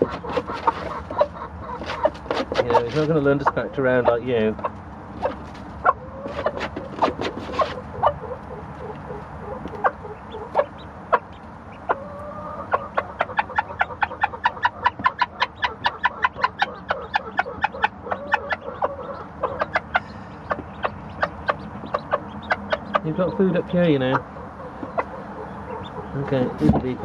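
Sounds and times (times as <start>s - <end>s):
pecking taps on wood shavings: 0.0s - 5.7s, 13.2s - 17.9s, 20.5s - 23.2s
hen clucking: 0.0s - 27.0s.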